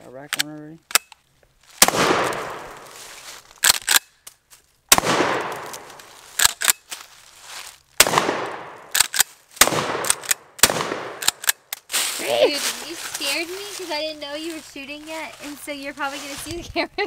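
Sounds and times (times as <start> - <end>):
shotgun blasts with echo: 1.8 - 3.0, 4.9 - 6.0, 8.0 - 9.0, 9.6 - 11.4
shotgun pump racking clacks: 11.2 - 11.8.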